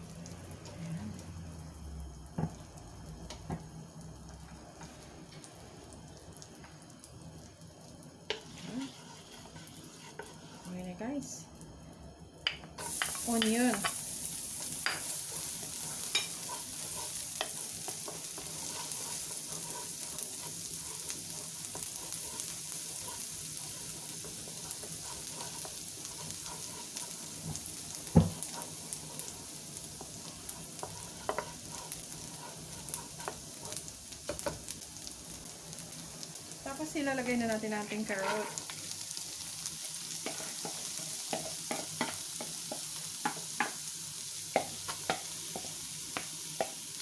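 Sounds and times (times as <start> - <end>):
onion sizzling in butter: 0.0 - 47.0
wooden spatula scraping and clicking: 8.3 - 10.8, 14.6 - 34.6, 37.7 - 38.8, 40.2 - 43.4.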